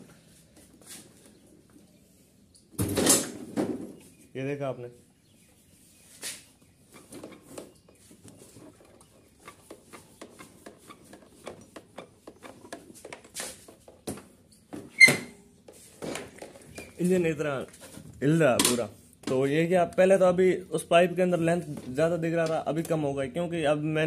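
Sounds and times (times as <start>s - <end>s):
plastic panels creaking and rubbing: 6.9s - 19.5s.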